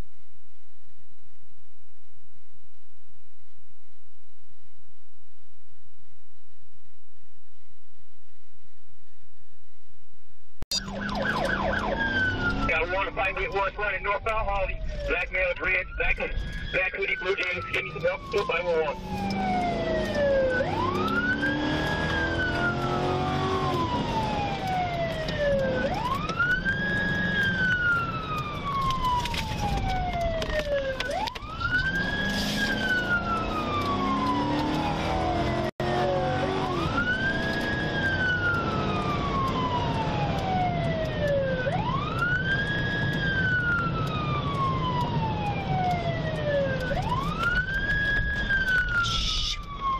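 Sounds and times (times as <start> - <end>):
car engine and road rumble: 0.0 - 49.9
police siren wailing: 10.7 - 49.9.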